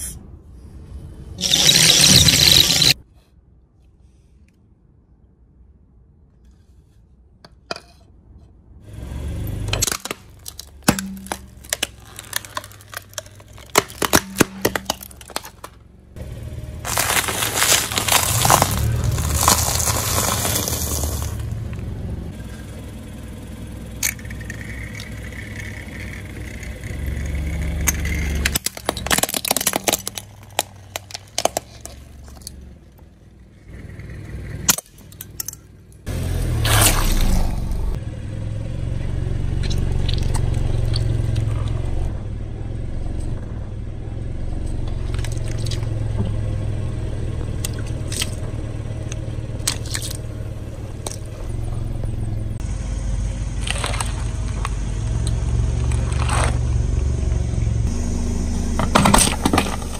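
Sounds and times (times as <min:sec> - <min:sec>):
car engine running: 0:08.8 - 0:59.9
tyre crushing brittle object: 0:09.7 - 0:15.8, 0:16.8 - 0:21.5, 0:27.6 - 0:32.6.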